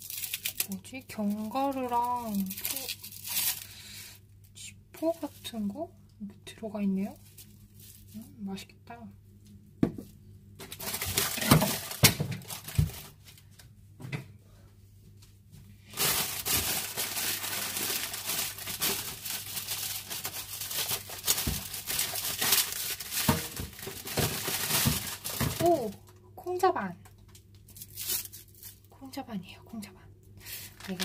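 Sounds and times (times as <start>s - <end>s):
plastic packaging crinkling: 0.0s - 3.8s, 7.0s - 8.3s, 10.6s - 13.5s, 15.8s - 26.0s, 27.3s - 28.9s, 30.5s - 31.0s.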